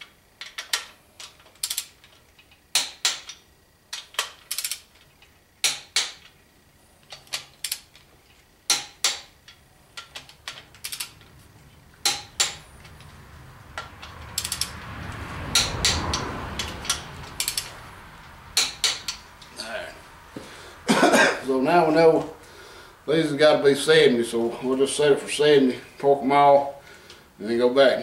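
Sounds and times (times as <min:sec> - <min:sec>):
torque wrench ratchet clicks: 0:00.4 - 0:03.4, 0:04.0 - 0:05.0, 0:07.4 - 0:07.9, 0:08.7 - 0:11.2, 0:13.8 - 0:14.8, 0:15.5 - 0:17.7
rushing noise: 0:12.8 - 0:20.9.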